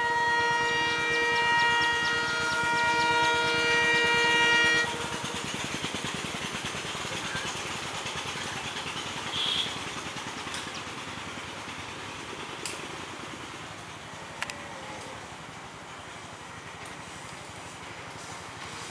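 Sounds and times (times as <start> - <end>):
locomotive horn blast: 0.0 - 5.5, 9.3 - 9.8
train rumbling: 0.0 - 18.9.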